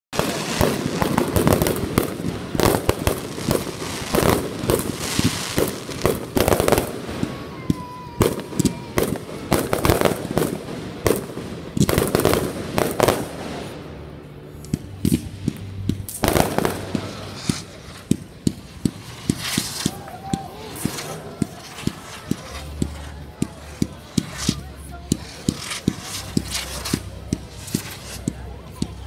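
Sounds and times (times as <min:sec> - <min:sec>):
fireworks bangs and crackles: 0:00.1 - 0:29.0.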